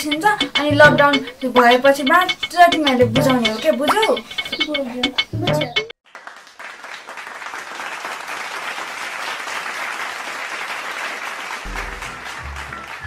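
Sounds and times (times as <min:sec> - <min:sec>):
low bass line music: 0:00.0 - 0:05.9, 0:11.7 - 0:13.0
crowd applause: 0:06.1 - 0:13.0.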